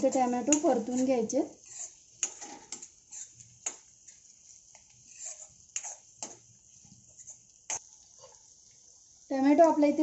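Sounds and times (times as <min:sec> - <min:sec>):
spatula tapping pan: 0:00.0 - 0:01.1, 0:01.7 - 0:06.5
spatula scraping pan: 0:00.0 - 0:08.4.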